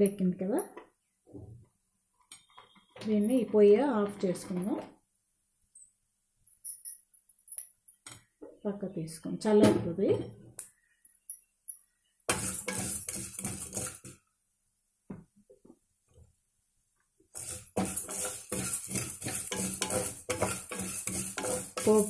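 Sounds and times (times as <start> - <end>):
spatula stirring dry lentils: 12.3 - 14.2, 17.3 - 22.0.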